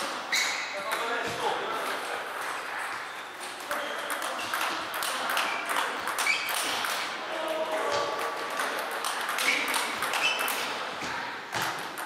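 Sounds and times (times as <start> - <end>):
table tennis ball clicks: 3.6 - 7.1, 8.0 - 10.8.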